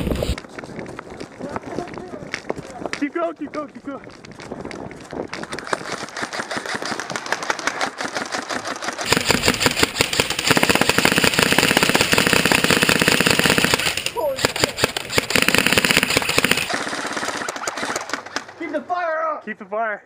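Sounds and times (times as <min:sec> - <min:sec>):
airsoft rifles firing full auto: 0:05.7 - 0:18.6.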